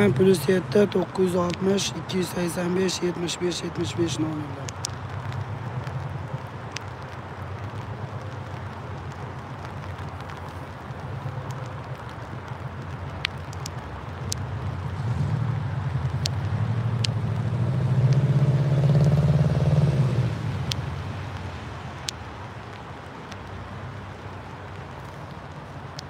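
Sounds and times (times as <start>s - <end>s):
engine rumble and wet road noise: 0.0s - 26.0s
vehicle passing by: 14.6s - 21.7s.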